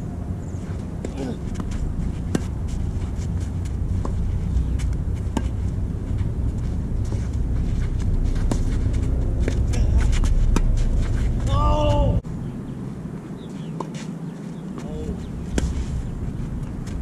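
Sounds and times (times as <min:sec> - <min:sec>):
wind buffeting microphone: 0:00.0 - 0:13.8, 0:14.6 - 0:17.0
tennis racket striking ball: 0:00.9 - 0:05.7.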